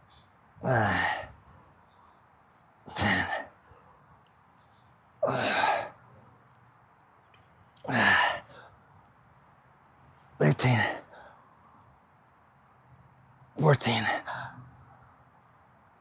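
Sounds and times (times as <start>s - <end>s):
man grunting with effort: 0.6s - 1.4s, 5.2s - 5.9s.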